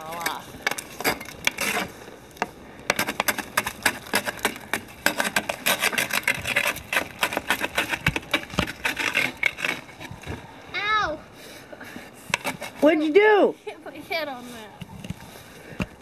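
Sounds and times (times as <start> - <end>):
snow shovel scraping packed snow: 11.4 - 15.8.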